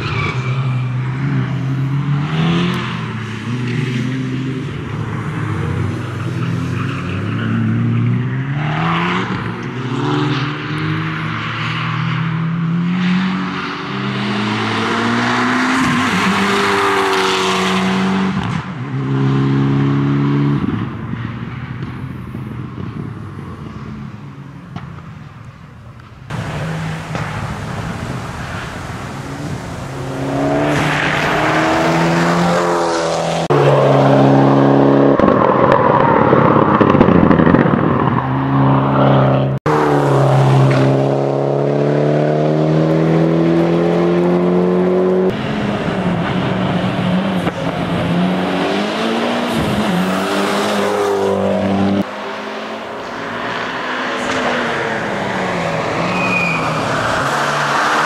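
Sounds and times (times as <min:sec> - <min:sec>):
race car engine revving: 0:26.3 - 0:35.5, 0:38.4 - 0:58.0.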